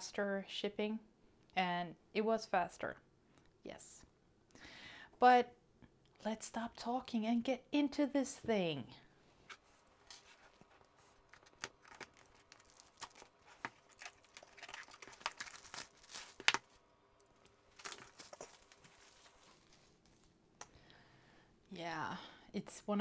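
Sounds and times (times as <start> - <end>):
plastic shrink wrap crackling: 9.8 - 20.0.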